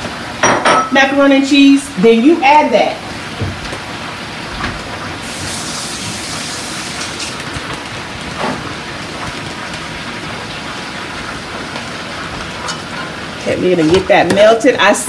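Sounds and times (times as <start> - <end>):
chicken sizzling in hot oil: 1.5 - 15.0.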